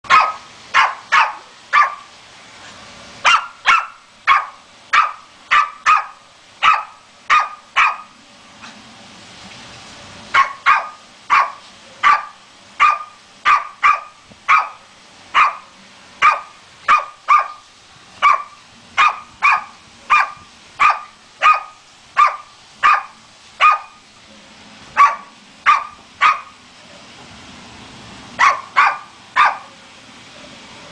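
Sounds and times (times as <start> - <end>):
small dog barking: 0.1 - 2.1, 3.2 - 8.2, 10.3 - 17.6, 18.2 - 24.0, 25.0 - 26.6, 28.4 - 29.7.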